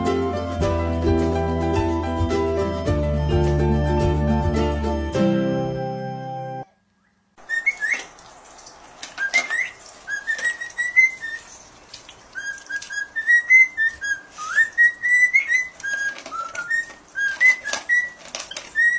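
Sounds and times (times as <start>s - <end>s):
cockatiel whistling: 7.0s - 8.1s, 9.2s - 11.4s, 12.4s - 18.9s
dog crunching dry kibble: 15.9s - 18.8s.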